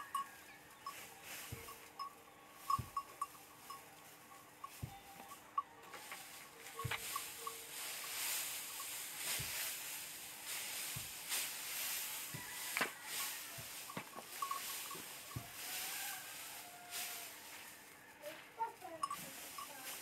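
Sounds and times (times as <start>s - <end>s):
dry straw rustling: 0.0s - 20.0s
stick thudding on crop: 6.0s - 16.1s.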